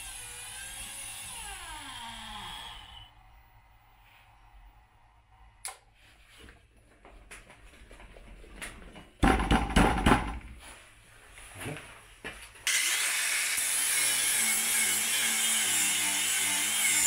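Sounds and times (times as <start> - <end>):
angle grinder starting: 0.0 - 3.2, 12.7 - 17.0.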